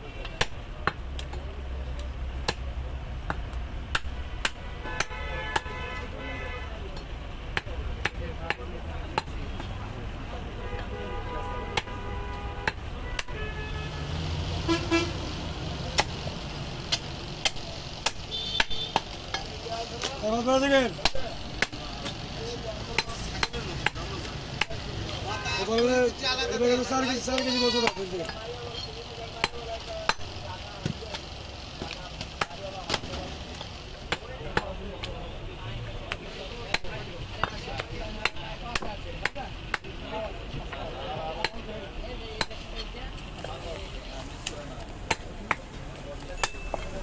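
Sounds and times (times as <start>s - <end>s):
cleaver chopping meat and bone: 0.2s - 5.7s, 7.0s - 9.7s, 11.7s - 12.0s, 12.6s - 13.4s, 15.9s - 25.9s, 27.2s - 28.6s, 29.3s - 35.2s, 36.0s - 40.0s, 40.6s - 41.7s, 42.4s - 42.7s, 45.0s - 45.7s, 46.3s - 46.9s
knife chopping meat on wood: 36.1s - 39.9s.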